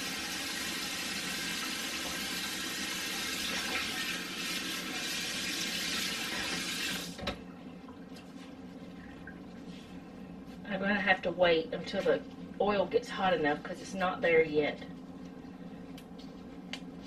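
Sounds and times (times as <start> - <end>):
kitchen faucet running: 0.0 - 7.2.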